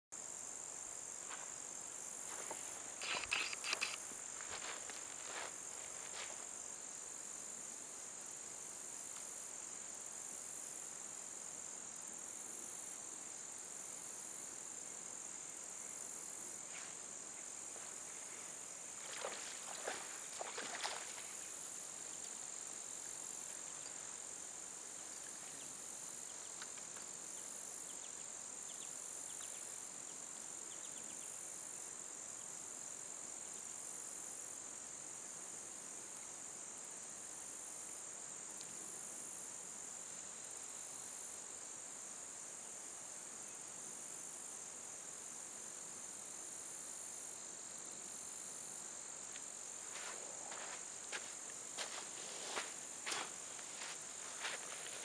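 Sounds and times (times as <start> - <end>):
insects chorus: 0.2 - 55.0
sharp clicks and rustles: 3.0 - 4.0.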